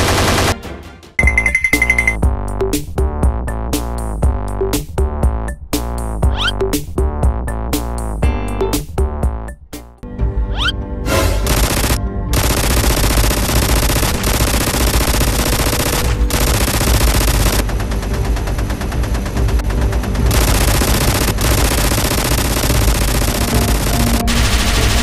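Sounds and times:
machine-gun fire: 0.0 - 0.6, 11.4 - 25.0.

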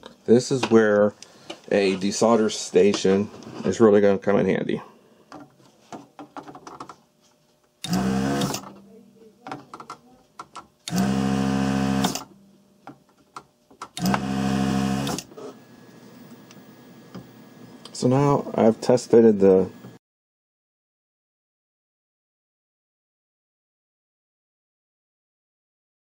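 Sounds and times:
vacuum pump running: 7.8 - 8.7, 10.8 - 12.3, 13.9 - 20.0.

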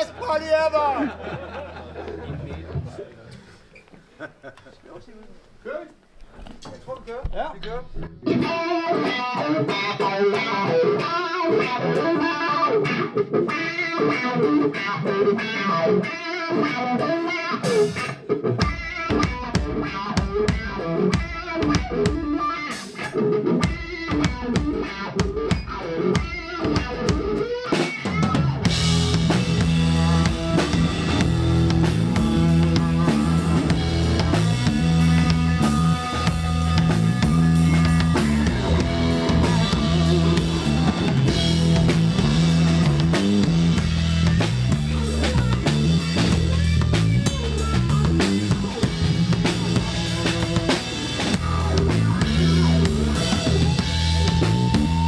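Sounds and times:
electric guitar riffing: 7.9 - 55.0
drum kit: 15.5 - 55.0
deep low end: 28.7 - 55.0.

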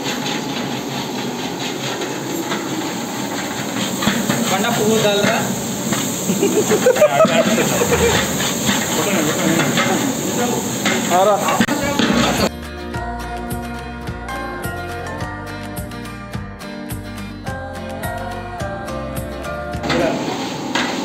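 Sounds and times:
gas burner hissing: 0.0 - 12.5, 19.4 - 21.0
background voices: 6.8 - 10.6
metal ladle scraping a pot: 7.4 - 10.1.

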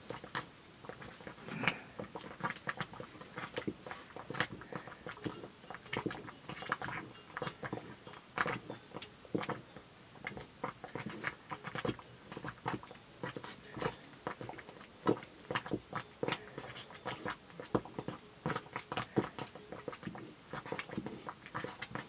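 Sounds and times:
wooden paddle stirring porridge: 0.0 - 22.0.

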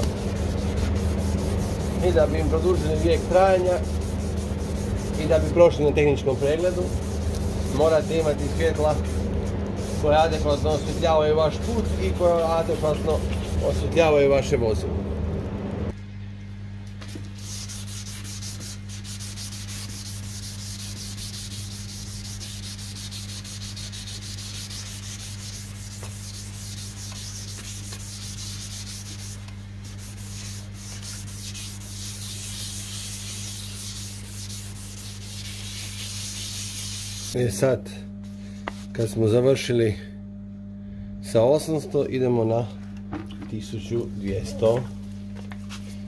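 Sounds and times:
sandpaper scratching plastic: 0.0 - 14.1, 17.0 - 37.4
steady low hum: 0.0 - 46.0.

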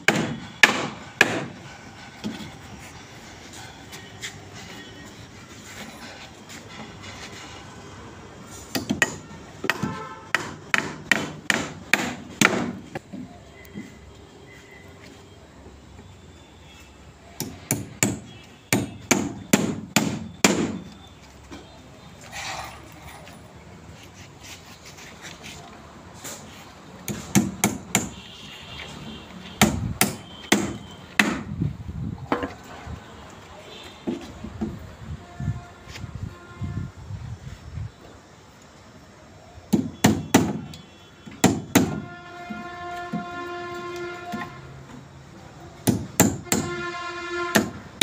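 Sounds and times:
hammer striking nails into wood: 0.1 - 1.6, 8.7 - 12.9, 17.4 - 20.8, 27.1 - 28.2, 29.6 - 31.5, 39.7 - 40.7, 41.3 - 42.1, 45.8 - 46.9, 47.5 - 47.8.

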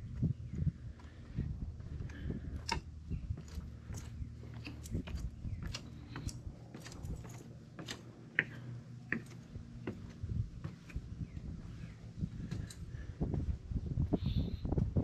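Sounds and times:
steady low rumble: 0.0 - 15.0
boots on wooden boards: 0.1 - 11.1.

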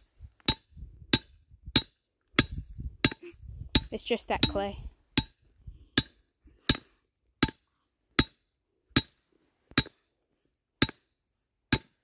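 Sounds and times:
hammer striking metal stake: 0.4 - 3.2, 3.8 - 5.4, 6.0 - 10.1, 10.8 - 12.0.

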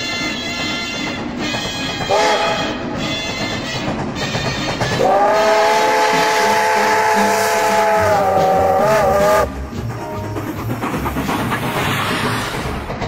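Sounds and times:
steam locomotive whistle: 1.7 - 9.5.

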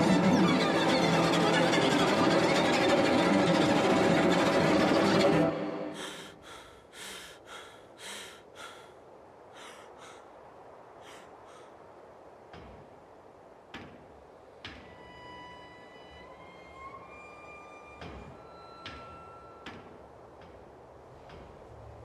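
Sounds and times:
man breathing hard: 5.9 - 11.9
faint knocks: 18.0 - 21.6.

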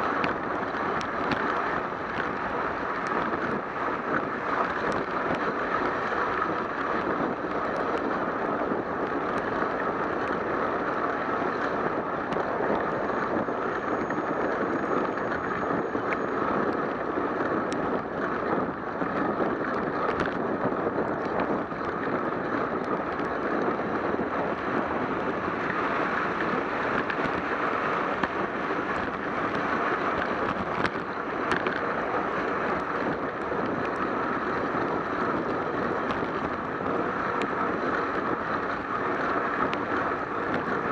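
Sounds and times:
wind over camera: 0.0 - 40.9.

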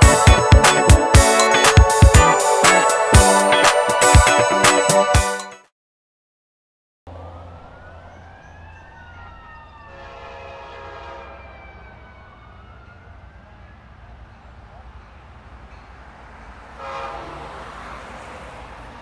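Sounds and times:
distant siren wailing: 7.1 - 15.0
outdoor background noise: 7.1 - 19.0
vehicle horn: 9.9 - 11.6, 16.8 - 17.8.

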